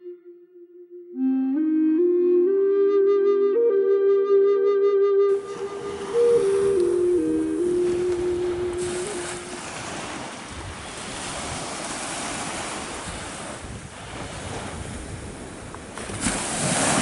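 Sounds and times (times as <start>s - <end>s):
wind on microphone: 5.2s - 17.0s
waves washing up a beach: 5.3s - 17.0s.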